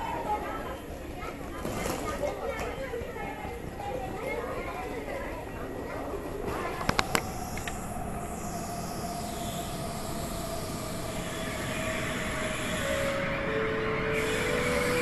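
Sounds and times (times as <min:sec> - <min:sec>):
train rumble: 0:00.0 - 0:15.0
train whine falling in pitch: 0:07.2 - 0:15.0.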